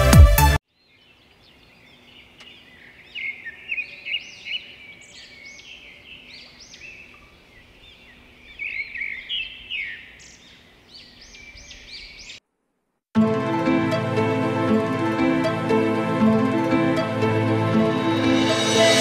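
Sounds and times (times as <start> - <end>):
songbirds chirping and twittering: 0.6 - 12.4.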